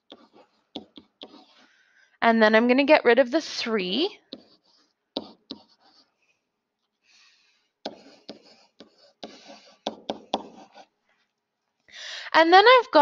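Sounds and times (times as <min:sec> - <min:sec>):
pen tapping down: 0:00.0 - 0:01.5, 0:05.2 - 0:05.7, 0:07.9 - 0:10.8
stylus scratching on surface: 0:00.0 - 0:01.8, 0:04.1 - 0:07.0, 0:07.9 - 0:11.0.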